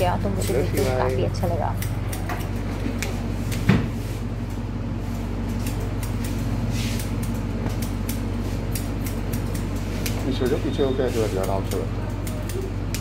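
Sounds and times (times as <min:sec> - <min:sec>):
electric hair clipper buzzing: 0:05.5 - 0:10.6, 0:11.3 - 0:13.0.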